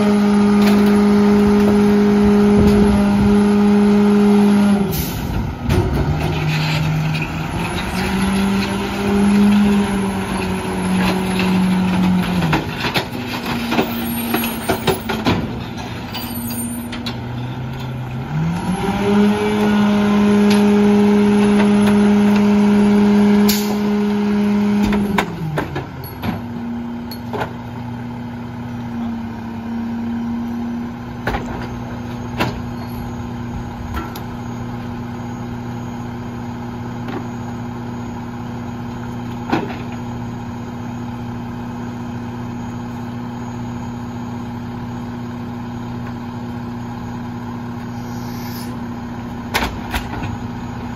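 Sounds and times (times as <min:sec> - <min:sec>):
garbage truck engine: 0:00.0 - 0:50.9
clunks and bangs in hopper: 0:00.1 - 0:27.9, 0:29.3 - 0:35.1, 0:39.1 - 0:40.4, 0:49.2 - 0:50.9.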